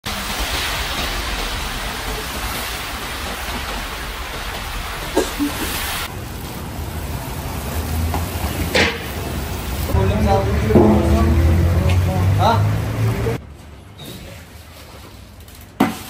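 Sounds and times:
meat sizzling in hot oil: 0:00.0 - 0:10.0.

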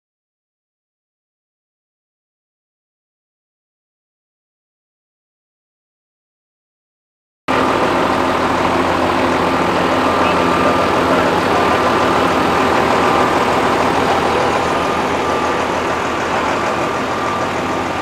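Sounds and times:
faint high whine: 0:07.5 - 0:18.0
tractor engine idling: 0:07.5 - 0:18.0.

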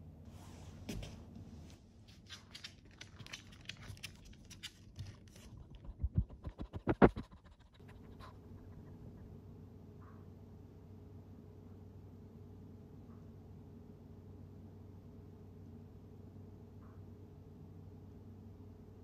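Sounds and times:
faint steady hum: 0:00.0 - 0:19.0
dog claws clicking on wooden floor: 0:02.1 - 0:05.9.

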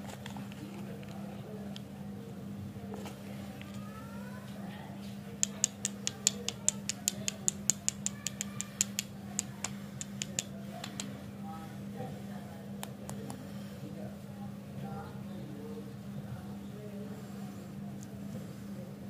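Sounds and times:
fingers clicking on lollipops: 0:05.4 - 0:11.1.

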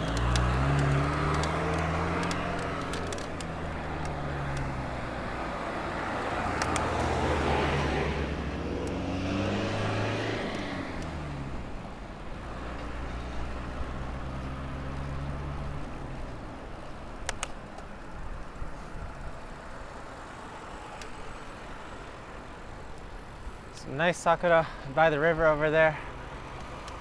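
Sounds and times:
sharp clicks: 0:00.0 - 0:04.7, 0:06.4 - 0:07.3, 0:17.2 - 0:17.9
road noise: 0:00.0 - 0:27.0.

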